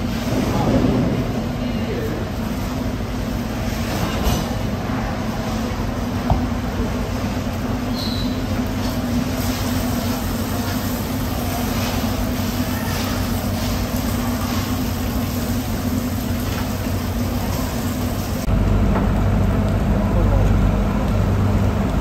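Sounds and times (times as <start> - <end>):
machine hum and rumble: 0.0 - 22.0
hose spraying water on concrete: 7.1 - 18.5.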